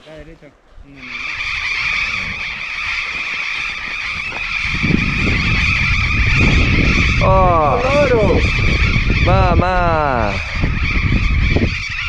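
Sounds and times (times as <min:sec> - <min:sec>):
parrots screeching: 0:01.0 - 0:09.3, 0:10.6 - 0:12.0
low rumble: 0:04.2 - 0:12.0.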